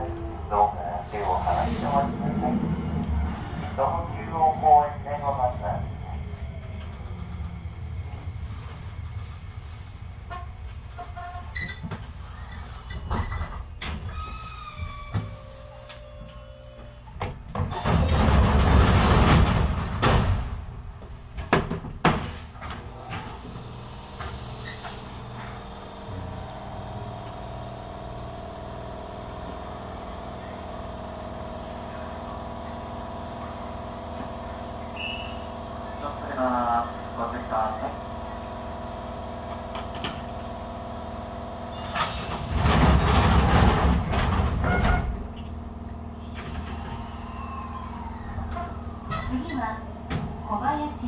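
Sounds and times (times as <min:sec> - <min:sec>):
train hum: 0:00.0 - 0:51.0
rush of air from doors: 0:01.0 - 0:03.9, 0:41.8 - 0:44.5
train doors knocking shut: 0:17.2 - 0:20.7, 0:21.4 - 0:23.5, 0:42.2 - 0:45.3.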